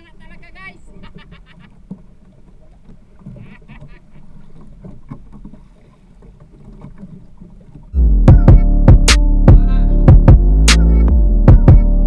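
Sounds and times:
water around a boat: 0.0 - 12.0
wind: 0.0 - 12.0
man laughing: 1.0 - 1.8.

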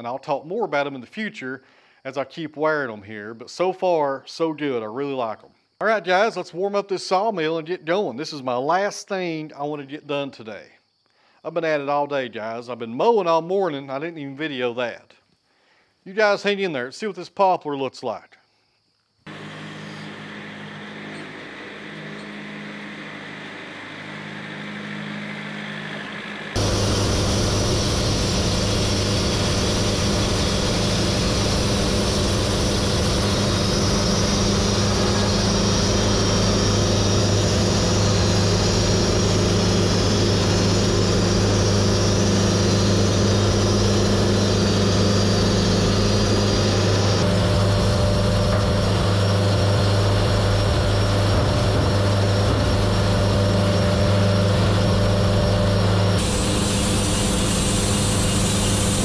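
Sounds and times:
band sawmill running: 19.3 - 59.0.

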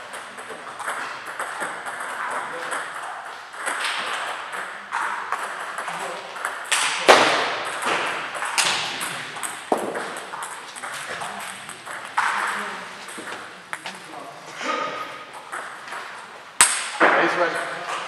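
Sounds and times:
sharp crack: 16.6 - 17.3.

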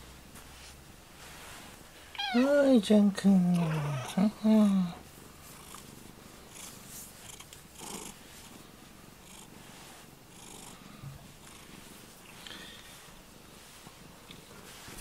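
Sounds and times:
hands rustling on fur: 0.2 - 2.6, 11.6 - 15.0
cat purring: 3.5 - 14.8.

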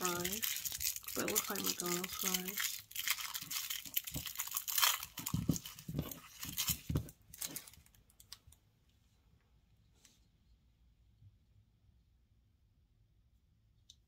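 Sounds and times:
plastic wrapper crinkling: 0.0 - 8.6.

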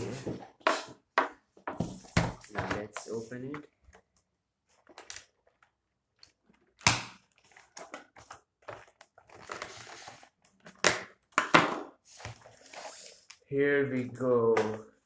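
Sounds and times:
cardboard and plastic crackling: 3.7 - 11.3.

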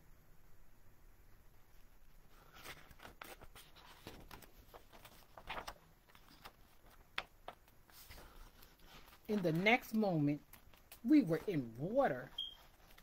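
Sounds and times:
paper page rustling: 1.7 - 13.0
paper crackle: 2.3 - 11.6, 12.2 - 13.0.

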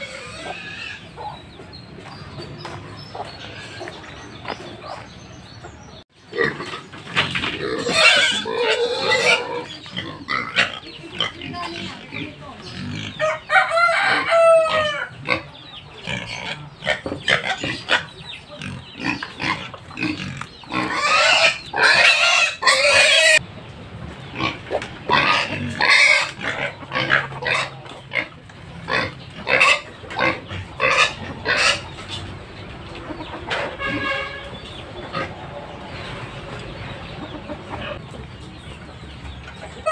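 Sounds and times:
pigs squealing: 0.0 - 1.5, 3.2 - 4.1, 6.2 - 23.4, 24.3 - 32.3
chickens clucking: 0.0 - 39.9.

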